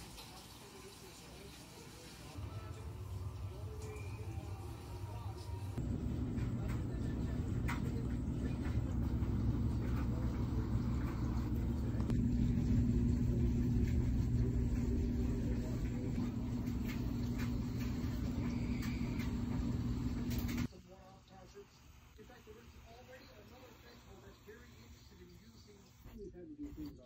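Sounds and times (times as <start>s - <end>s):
steady low rumble: 2.4s - 20.7s
faint constant hum: 2.4s - 27.0s.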